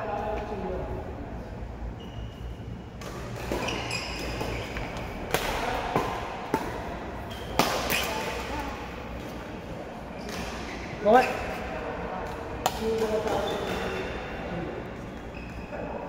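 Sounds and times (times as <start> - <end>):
shoe squeaks: 1.9 - 5.7, 7.2 - 8.2, 13.3 - 14.3, 15.0 - 16.0
rackets striking shuttlecock: 3.0 - 8.6.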